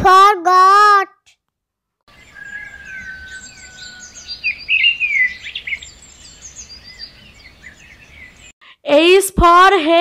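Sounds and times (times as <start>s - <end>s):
small birds chirping: 2.1s - 8.8s.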